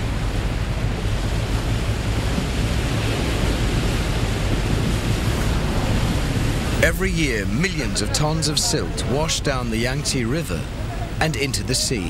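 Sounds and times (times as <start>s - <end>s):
wind rushing: 0.0s - 9.5s
low rumble: 0.0s - 11.5s
water rushing: 0.0s - 12.0s.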